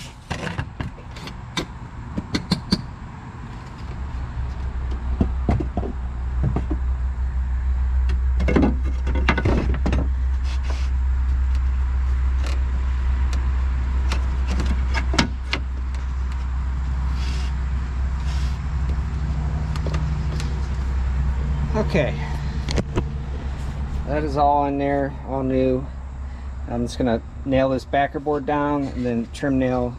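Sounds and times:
low mechanical hum: 0.0s - 29.9s.

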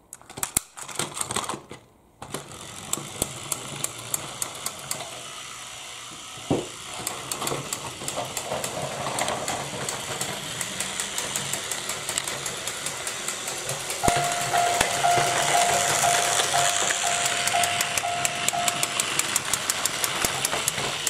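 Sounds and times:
wheels clicking over track joints: 0.2s - 5.2s, 6.1s - 21.0s
toy train motors whirring: 2.2s - 21.0s
level crossing warning tone: 14.0s - 19.8s.

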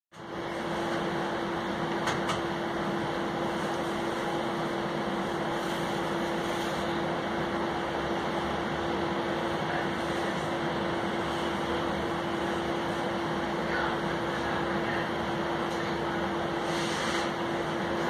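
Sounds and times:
streetcar interior hum: 0.2s - 18.0s.

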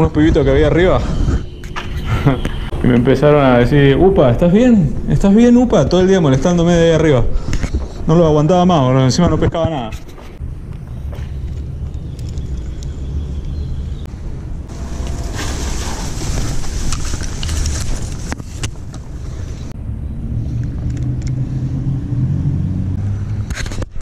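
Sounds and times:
road traffic rumble: 0.0s - 8.2s, 10.0s - 24.0s
leaves brushing microphone: 14.7s - 19.7s.

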